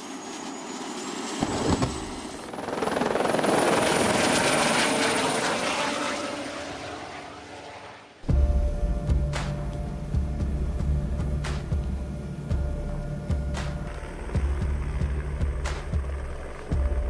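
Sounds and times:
helicopter rotor chop: 0:00.0 - 0:08.4
helicopter high whine: 0:00.0 - 0:17.0.

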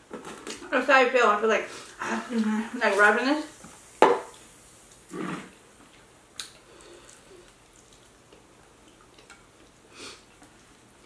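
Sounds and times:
faint chewing: 0:04.3 - 0:11.0.

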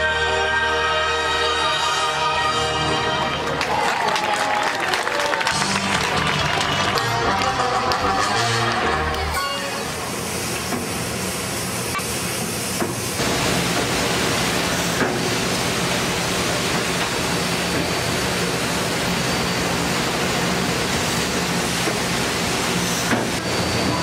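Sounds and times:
steam engine hissing: 0:08.3 - 0:24.0
paddle wheel churning water: 0:12.1 - 0:24.0.

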